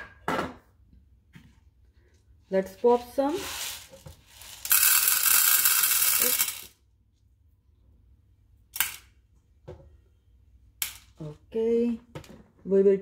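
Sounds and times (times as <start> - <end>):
popcorn kernels rattling: 3.3 - 6.8.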